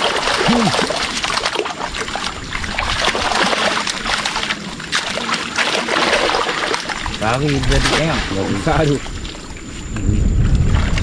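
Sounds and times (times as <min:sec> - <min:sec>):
net splashing through water: 0:00.0 - 0:09.4.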